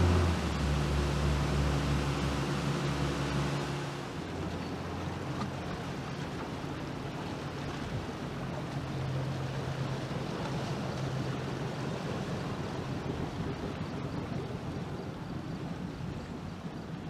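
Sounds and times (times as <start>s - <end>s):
river water rushing: 0.0s - 11.5s
boat engine humming: 0.0s - 17.0s
wind on microphone: 11.3s - 17.0s.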